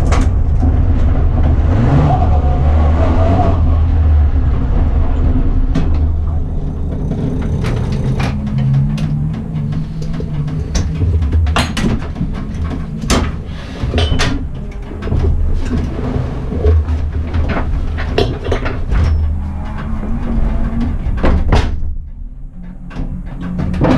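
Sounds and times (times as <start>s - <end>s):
car engine running low: 0.0s - 23.9s
clunks and rattles of car shell: 5.6s - 19.4s, 20.7s - 22.2s.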